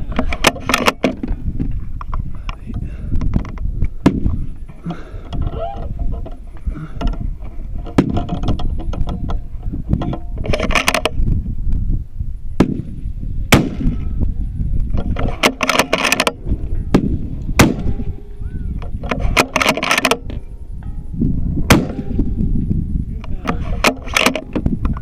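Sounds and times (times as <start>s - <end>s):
rifle shots: 13.5s - 14.0s, 16.9s - 18.4s, 21.7s - 22.4s
low rumble: 20.2s - 25.0s.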